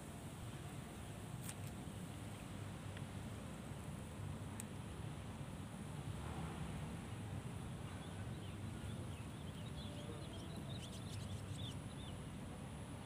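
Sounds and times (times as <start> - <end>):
small birds chirping: 8.3 - 12.2.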